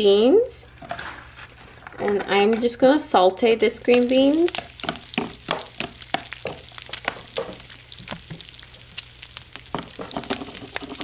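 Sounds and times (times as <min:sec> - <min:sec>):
frying sizzle: 0:03.7 - 0:11.0.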